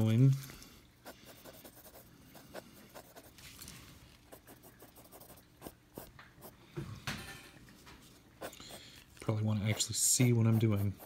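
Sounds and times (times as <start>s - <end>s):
pencil scratching on paper: 1.0s - 3.4s, 4.3s - 6.5s, 9.6s - 11.0s.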